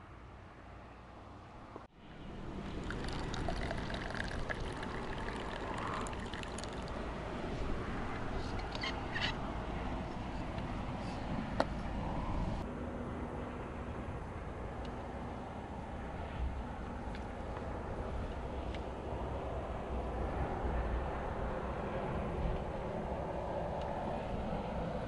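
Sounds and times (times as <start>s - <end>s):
liquid pouring into cup: 2.8s - 7.0s.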